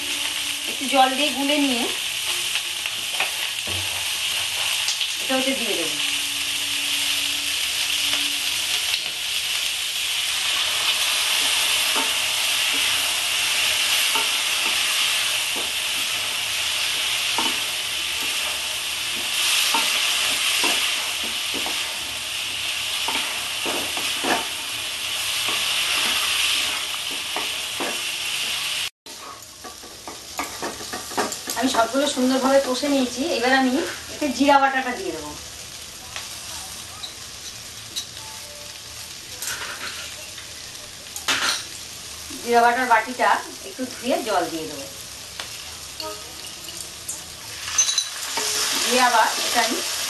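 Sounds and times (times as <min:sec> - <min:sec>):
vegetables sizzling in oil: 0:00.0 - 0:50.0
spatula scraping pan: 0:10.4 - 0:24.6, 0:25.2 - 0:31.9.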